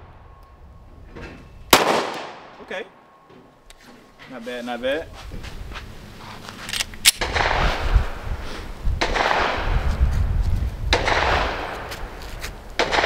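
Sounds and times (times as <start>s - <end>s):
pistol shots echoing: 1.7s - 2.6s, 12.8s - 13.0s.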